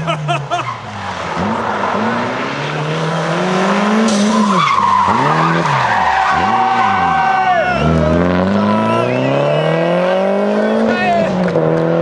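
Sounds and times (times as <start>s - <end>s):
rally car engine revving: 0.0s - 12.0s
tyres screeching on tarmac: 0.4s - 9.7s.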